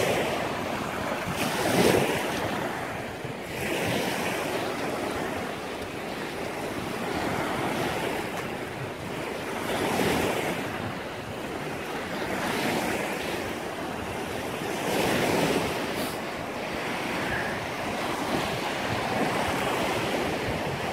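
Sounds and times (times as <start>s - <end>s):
waves washing up sand beach: 0.0s - 20.9s
wind on microphone: 0.0s - 20.9s.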